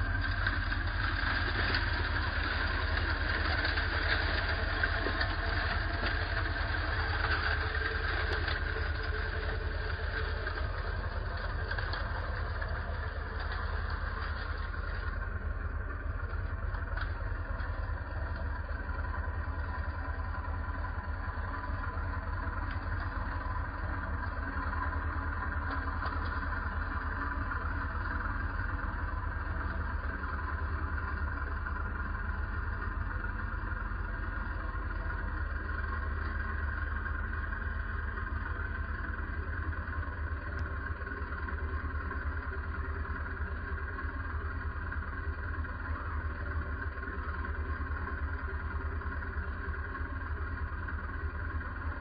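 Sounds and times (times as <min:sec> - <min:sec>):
engine running steadily: 0:00.0 - 0:52.0.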